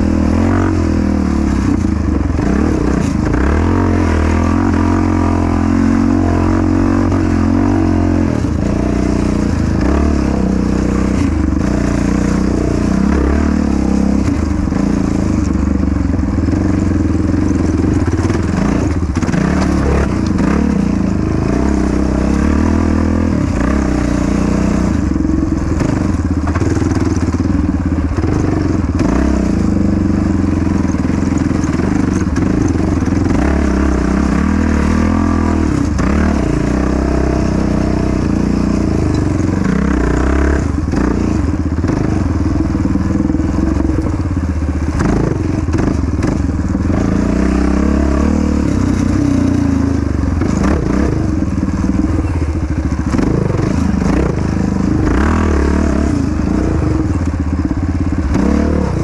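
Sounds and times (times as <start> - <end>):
quad engine revving: 0.0 - 59.0.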